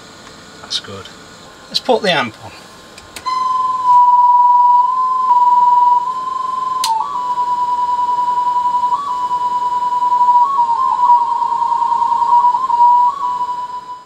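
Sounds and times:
whistle-like test tone: 0:03.2 - 0:14.0.

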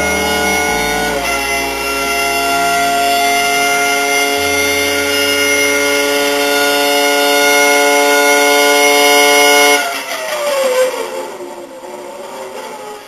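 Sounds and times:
loud drone of several pitches: 0:00.0 - 0:10.1.

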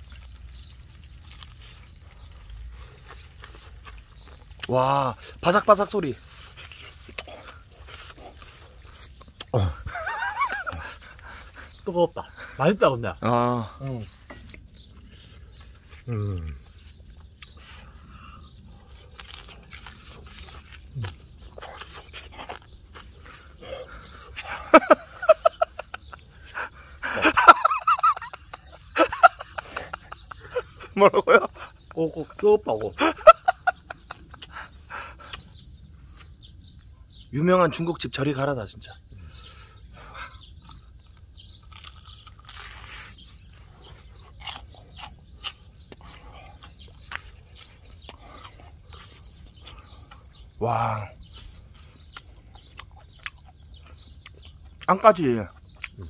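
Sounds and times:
person chewing with crunches: 0:00.0 - 0:12.4, 0:14.0 - 0:31.9, 0:33.4 - 0:37.1, 0:39.4 - 0:50.6, 0:51.2 - 0:56.0
crisp chewing clicks: 0:18.6 - 0:23.3, 0:40.6 - 0:50.5, 0:51.4 - 0:56.0.

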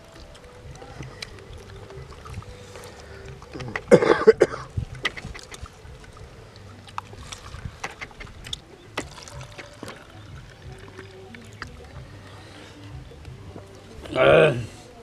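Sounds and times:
liquid pouring into plastic cup: 0:09.0 - 0:12.0.

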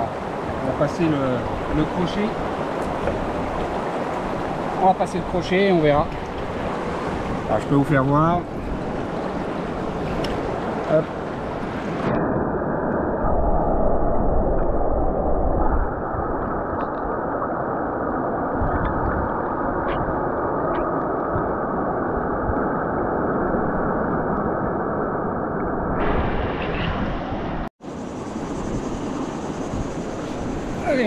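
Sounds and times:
river water rushing: 0:00.0 - 0:12.2.

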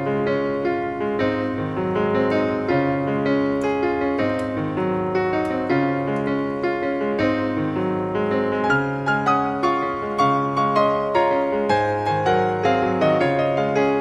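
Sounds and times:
background piano music: 0:00.0 - 0:14.0.

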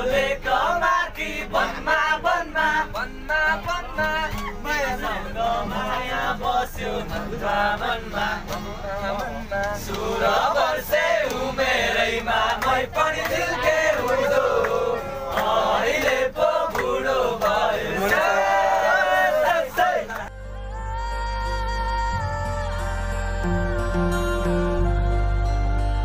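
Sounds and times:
group singing together: 0:00.0 - 0:20.3.

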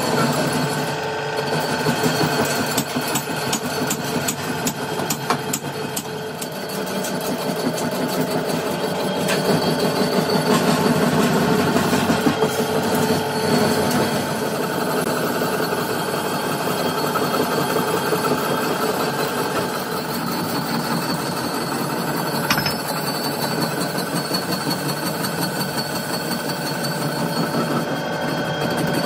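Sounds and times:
metalworking machinery running: 0:00.0 - 0:29.0
sharp clicks or knocks: 0:22.5 - 0:22.9.

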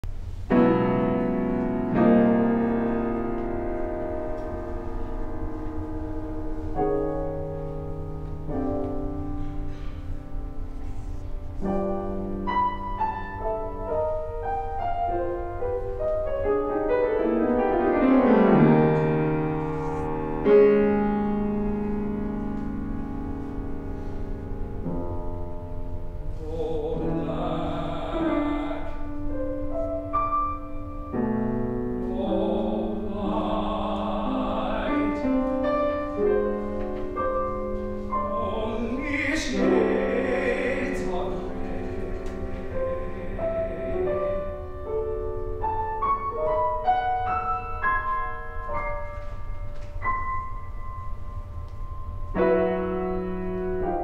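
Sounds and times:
grand piano chords: 0:00.0 - 0:54.0
man singing classically: 0:26.2 - 0:29.4, 0:32.0 - 0:35.8, 0:38.2 - 0:44.7.

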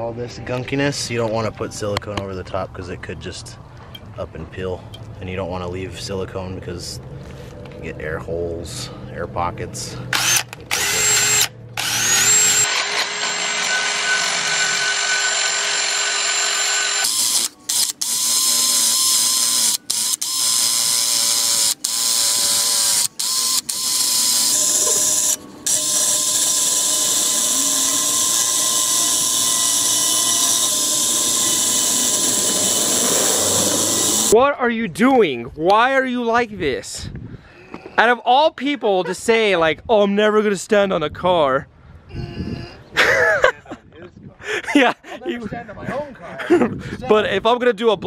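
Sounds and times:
drill wire brush scrubbing metal: 0:10.2 - 0:34.4.

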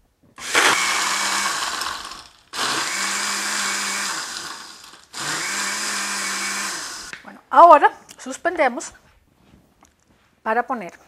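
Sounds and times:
blender churning ice: 0:00.4 - 0:07.1.

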